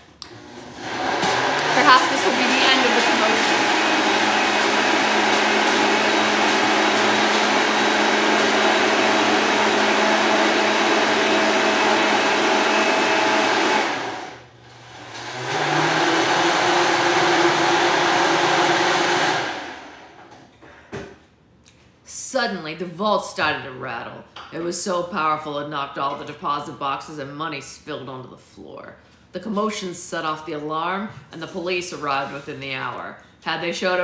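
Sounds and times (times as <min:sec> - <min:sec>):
electric blender running: 0:00.2 - 0:20.3.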